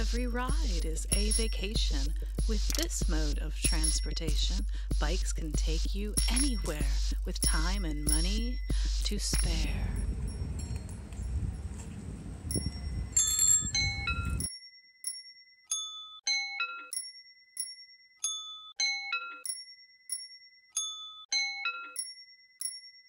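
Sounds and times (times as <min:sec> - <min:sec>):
outdoor background rumble: 0:00.0 - 0:14.1
bicycle bell dings tune: 0:01.1 - 0:01.8, 0:03.7 - 0:04.3, 0:07.5 - 0:11.6, 0:12.5 - 0:23.0.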